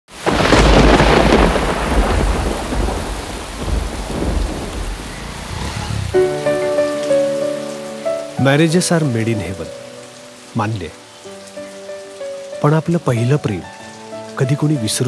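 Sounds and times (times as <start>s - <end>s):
heavy rain: 0.1s - 15.0s
thunder rumbling: 0.2s - 7.7s
sustained musical notes: 6.0s - 15.0s.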